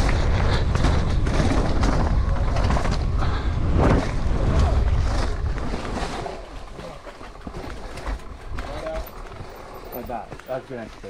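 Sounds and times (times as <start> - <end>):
wind rushing over microphone: 0.0 - 6.7
bike rattling over bumps: 0.0 - 11.0
tyres on loose dirt: 0.0 - 11.0.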